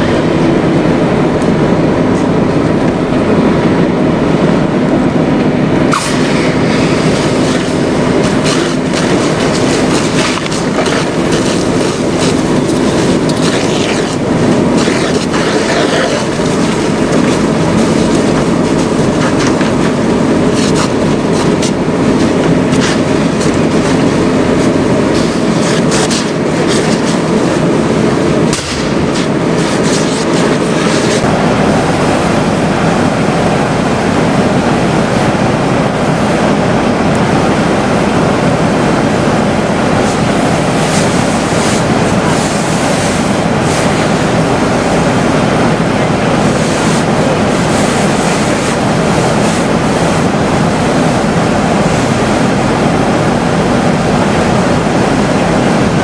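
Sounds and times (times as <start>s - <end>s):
fire hose water spray and fire: 0.0s - 56.0s
fire popping and cracking: 5.8s - 33.0s.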